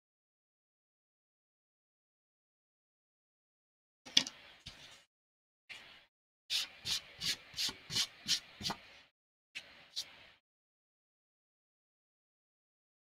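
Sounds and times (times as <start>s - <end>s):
rubbing strokes on paper: 9.6s - 10.4s.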